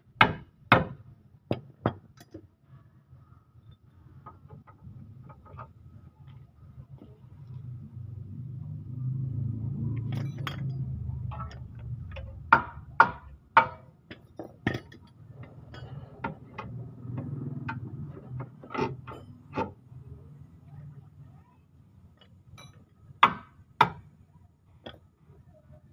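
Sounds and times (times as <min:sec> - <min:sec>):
low rumble: 0:06.6 - 0:13.6
metal tools clinking: 0:10.0 - 0:12.2.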